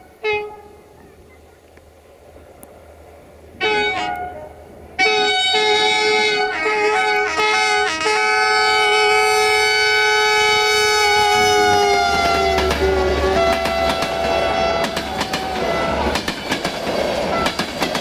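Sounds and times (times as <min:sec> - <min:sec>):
locomotive horn: 0:00.0 - 0:01.0, 0:03.6 - 0:16.2, 0:17.3 - 0:17.6.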